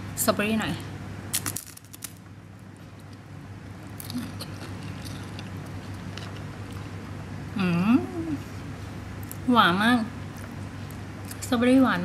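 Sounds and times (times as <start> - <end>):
steady low hum: 0.0 - 12.0
chewing with mouth closed: 4.0 - 6.9.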